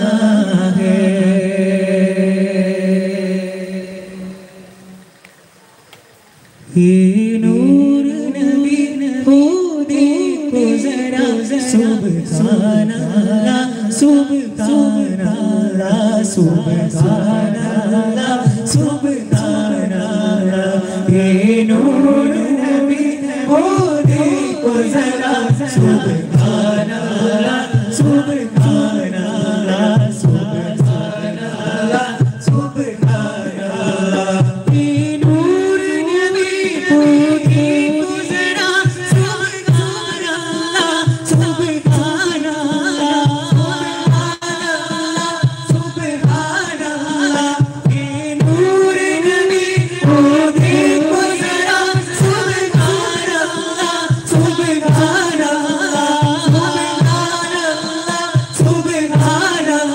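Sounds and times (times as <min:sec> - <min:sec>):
male voices singing together: 0:00.0 - 0:05.2, 0:06.6 - 0:59.9
frame drum beats: 0:21.1 - 0:59.8.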